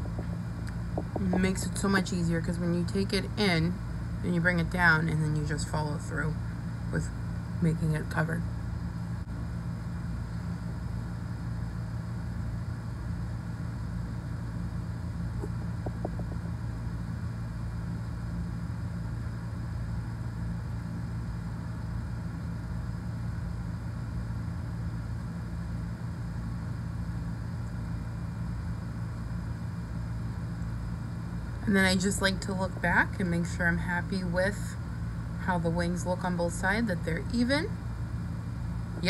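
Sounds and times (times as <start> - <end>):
low mechanical hum: 0.0 - 39.0.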